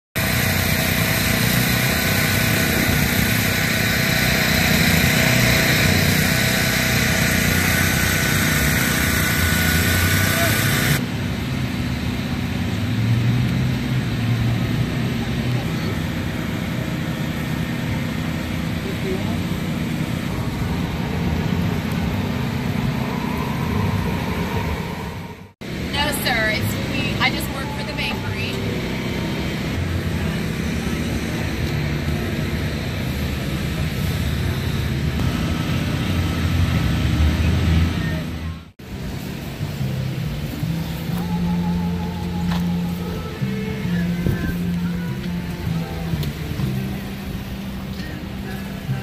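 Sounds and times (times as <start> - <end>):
tyres hissing on wet road: 0.2 - 25.0, 25.6 - 38.2, 38.8 - 49.0
low engine rumble: 0.2 - 49.0.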